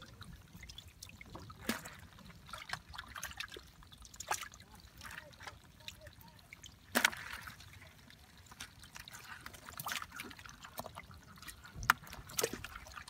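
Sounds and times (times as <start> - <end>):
hands sloshing in muddy water: 1.5 - 13.0
sharp splashes: 6.6 - 13.0.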